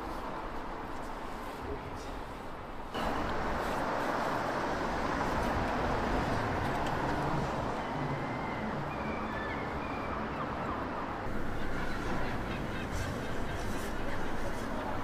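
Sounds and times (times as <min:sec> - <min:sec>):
street traffic noise: 0:00.0 - 0:15.0.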